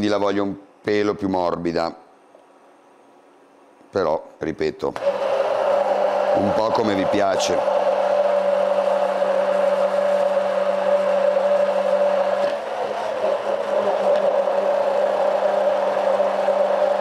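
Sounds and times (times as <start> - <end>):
immersion blender motor whine: 5.0 - 17.0.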